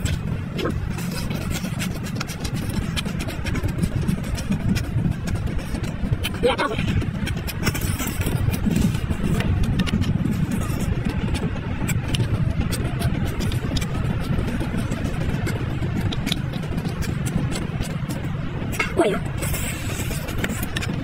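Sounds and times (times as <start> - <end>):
low rumble: 0.0 - 21.0
shell cracking while chewed: 7.2 - 18.1.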